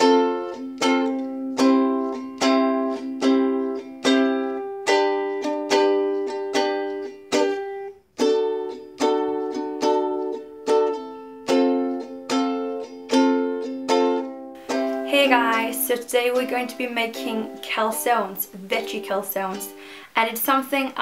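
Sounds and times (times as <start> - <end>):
ukulele strumming chords: 0.0 - 21.0.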